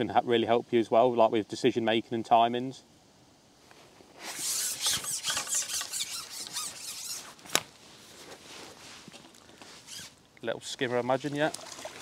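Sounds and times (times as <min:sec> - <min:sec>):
fishing pole squeaking and rubbing: 0:04.2 - 0:07.5, 0:09.6 - 0:10.2.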